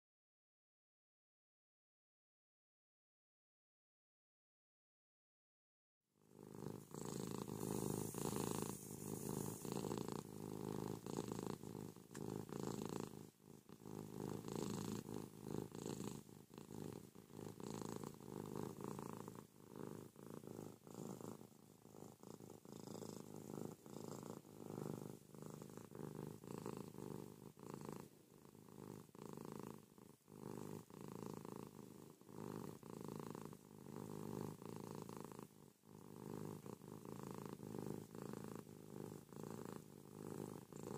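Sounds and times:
cat purring: 0:06.2 - 0:40.9.

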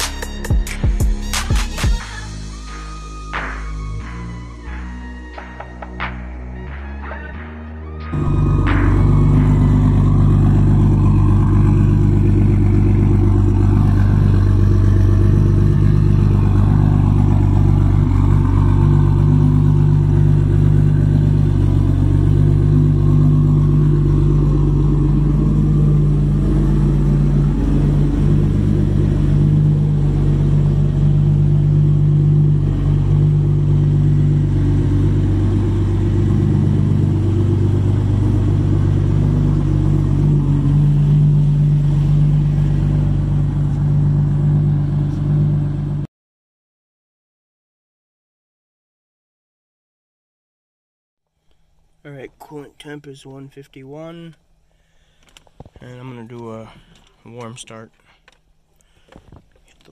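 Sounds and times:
car engine idling: 0:02.4 - 0:46.1.

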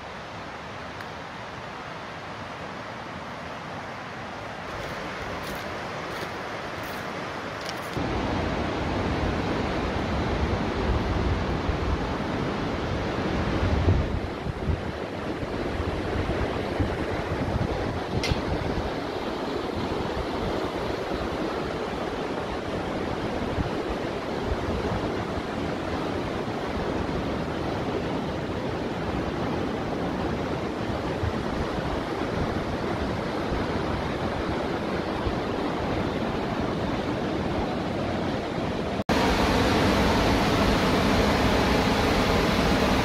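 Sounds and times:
mountain river rushing: 0:00.0 - 0:43.0.

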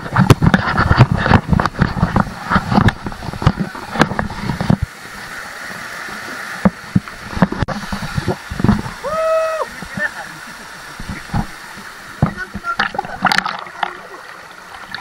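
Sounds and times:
low thumps and knocks: 0:00.0 - 0:04.9, 0:06.6 - 0:09.0
rushing water: 0:00.0 - 0:15.0.

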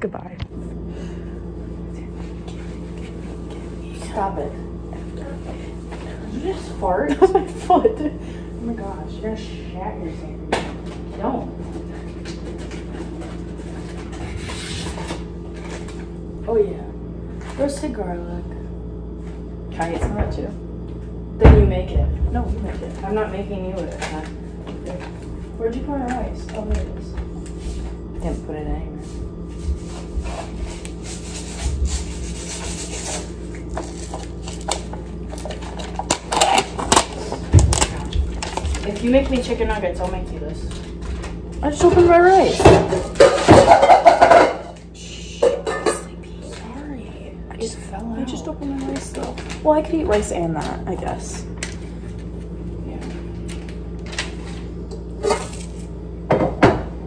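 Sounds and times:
steady low hum: 0:00.0 - 0:57.0
plastic packaging rustling: 0:30.0 - 0:41.4, 0:48.4 - 0:52.5
dishes clinking and knocking: 0:41.9 - 0:44.8, 0:45.4 - 0:46.1.

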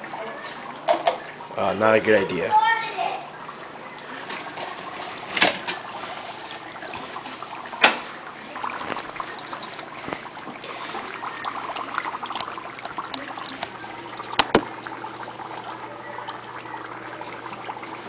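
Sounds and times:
dry ice bubbling in water: 0:00.0 - 0:18.0.

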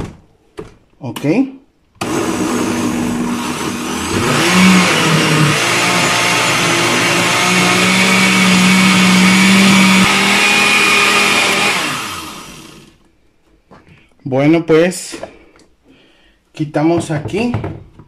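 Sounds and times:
blender running: 0:02.0 - 0:13.0.

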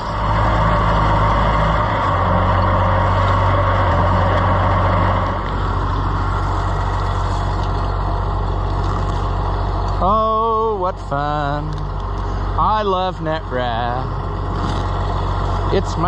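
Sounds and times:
tractor engine running: 0:00.0 - 0:16.0.

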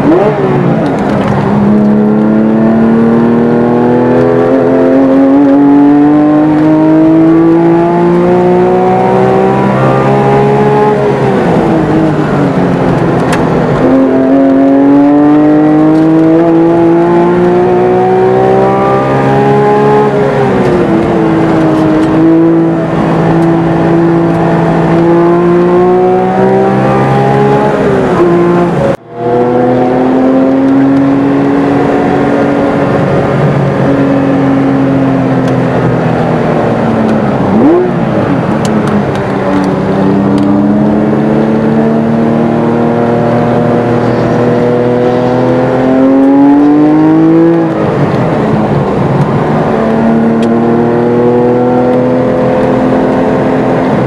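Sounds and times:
car engine revving: 0:00.0 - 0:54.0.

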